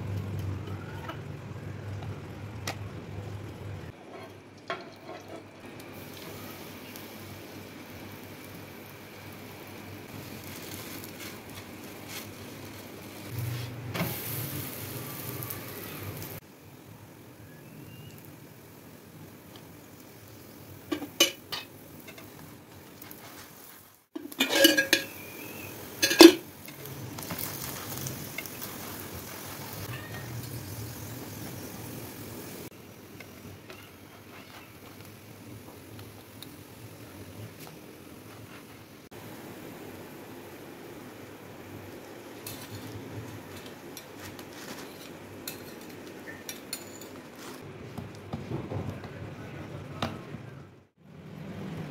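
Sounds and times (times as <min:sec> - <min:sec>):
steady background hiss: 0:01.3 - 0:47.9
metal utensils scraping a pan: 0:04.0 - 0:05.6, 0:24.2 - 0:29.0
flatbread sizzling in oil: 0:04.0 - 0:47.6
metal spatula clinking on plate: 0:24.2 - 0:25.2, 0:26.0 - 0:26.8.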